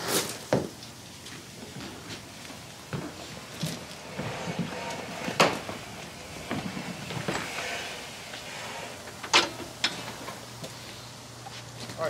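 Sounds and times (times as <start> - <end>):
knocks and clatter: 2.9 - 10.4.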